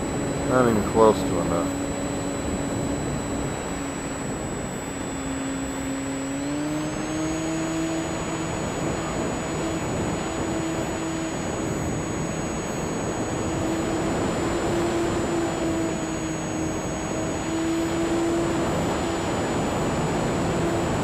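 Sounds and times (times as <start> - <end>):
faint high electronic whine: 0.0 - 21.0
model plane motor humming: 0.0 - 21.0
wind noise: 0.0 - 21.0.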